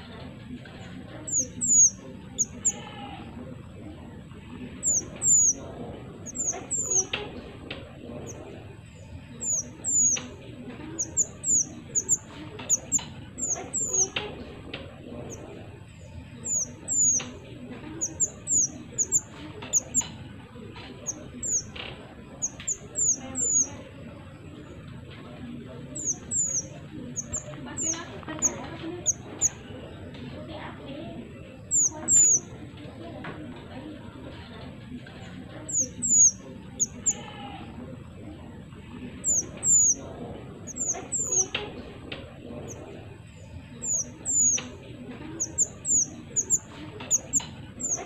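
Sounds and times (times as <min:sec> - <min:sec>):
bird singing high whistled notes: 0:01.3 - 0:02.8, 0:04.8 - 0:05.6, 0:09.4 - 0:10.3, 0:11.0 - 0:14.1, 0:16.4 - 0:17.3, 0:26.0 - 0:28.0, 0:39.2 - 0:40.0, 0:43.8 - 0:44.7.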